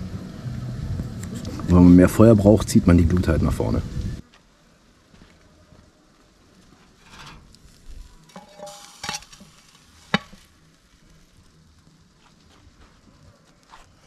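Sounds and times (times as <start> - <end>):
metal scraping and clinking: 7.0 - 10.4.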